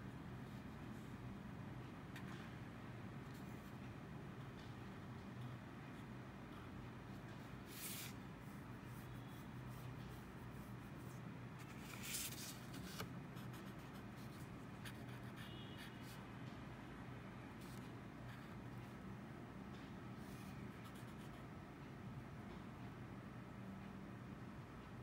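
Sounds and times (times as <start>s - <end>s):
marker scratching on paper: 7.3s - 16.2s.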